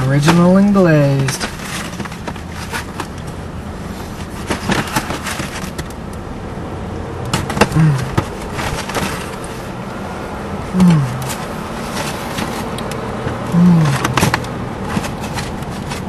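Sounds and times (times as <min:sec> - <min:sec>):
car engine hum: 0:00.0 - 0:16.0
cardboard box crinkling: 0:04.1 - 0:05.9, 0:13.6 - 0:16.0.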